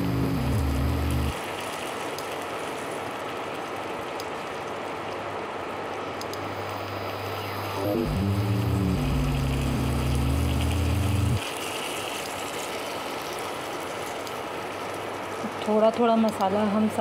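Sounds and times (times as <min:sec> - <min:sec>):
low mechanical drone: 0:00.0 - 0:01.4, 0:06.6 - 0:11.4
chicken sizzling in hot oil: 0:08.7 - 0:15.7.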